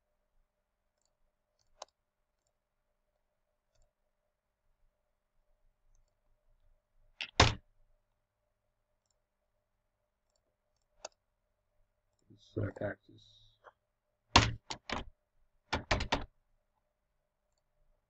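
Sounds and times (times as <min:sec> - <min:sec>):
computer mouse clicks: 0:01.0 - 0:02.6, 0:05.9 - 0:06.2, 0:10.3 - 0:11.2.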